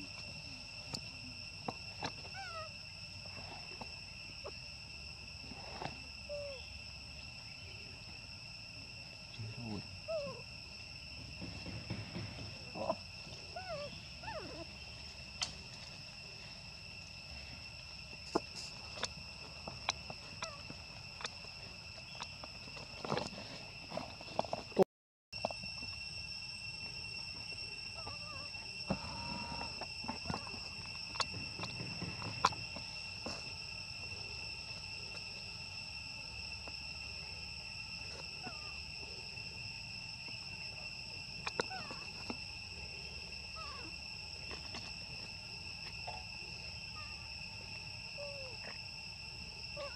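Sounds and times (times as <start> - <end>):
high-pitched insect drone: 0.0 - 24.8, 25.4 - 49.9
young monkeys squeaking: 13.5 - 14.8.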